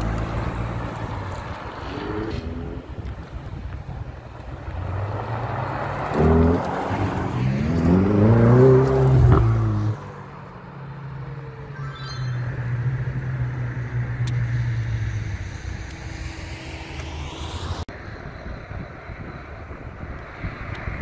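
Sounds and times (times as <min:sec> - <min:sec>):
sports car engine accelerating: 0:04.4 - 0:10.2.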